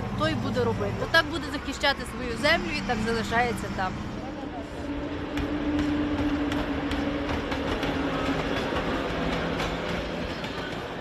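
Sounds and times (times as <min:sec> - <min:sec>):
train humming: 0:00.0 - 0:11.0
train wheels clacking: 0:04.8 - 0:11.0.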